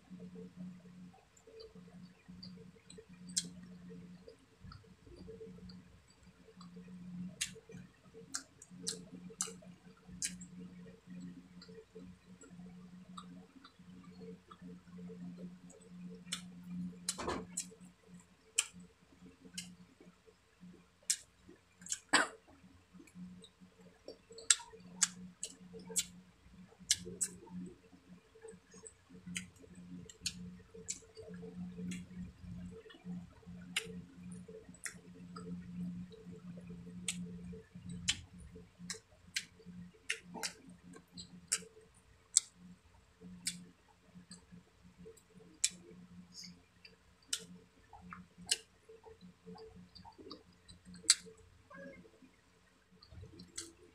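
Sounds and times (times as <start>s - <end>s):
wet mouth clicks and lip smacks: 24.4s - 26.1s, 26.8s - 27.4s.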